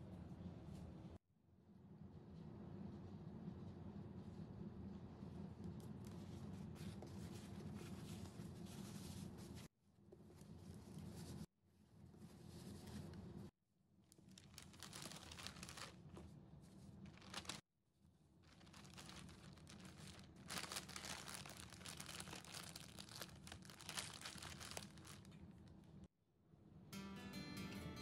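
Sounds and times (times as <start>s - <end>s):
paper and plastic bag crinkling: 14.1s - 16.3s, 17.0s - 17.6s, 18.4s - 25.8s.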